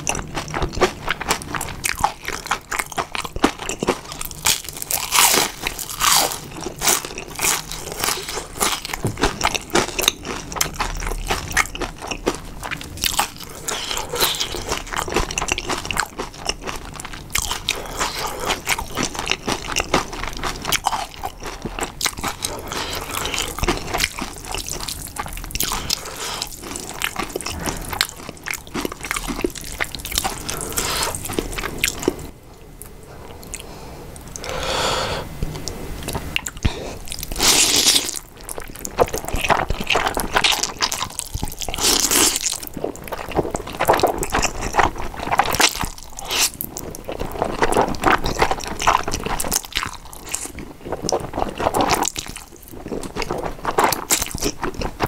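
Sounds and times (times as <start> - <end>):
sticky chewing and mouth smacks: 35.4 - 55.0.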